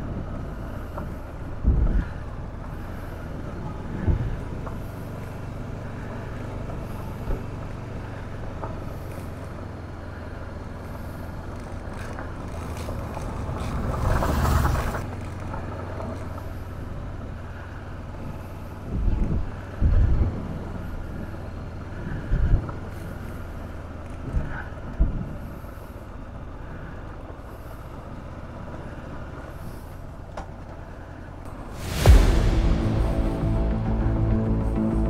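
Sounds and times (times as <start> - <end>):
wind noise on microphone: 0.0 - 2.7, 18.2 - 21.3, 31.5 - 35.0
motorcycle engine running: 0.0 - 30.9.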